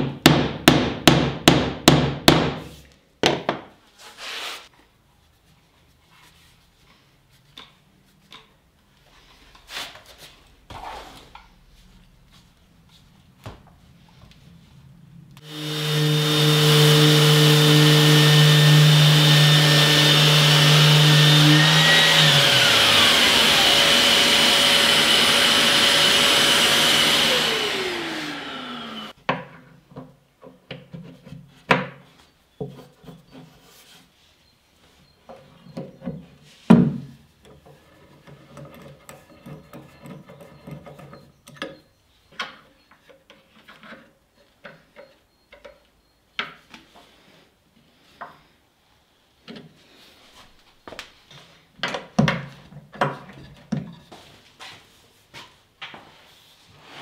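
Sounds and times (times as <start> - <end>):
power tool running: 15.4 - 29.2.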